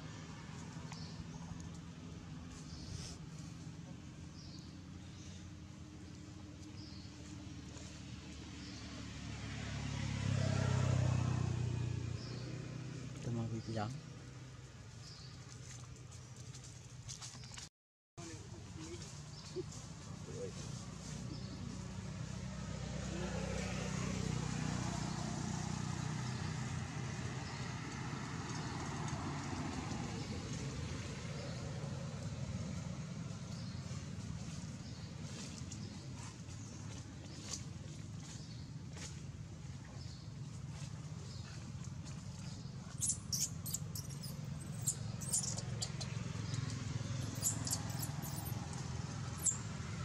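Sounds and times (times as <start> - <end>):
vehicle engine running: 0.0 - 17.6, 18.2 - 50.0
baby monkey squeaking: 43.0 - 48.6, 49.3 - 49.7.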